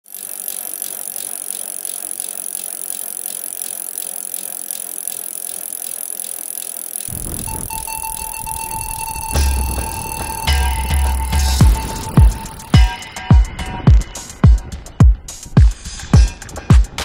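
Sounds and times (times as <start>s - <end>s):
bicycle hub ticking: 0.0s - 17.0s
steady high hiss: 7.1s - 13.2s
held tone: 7.1s - 13.9s.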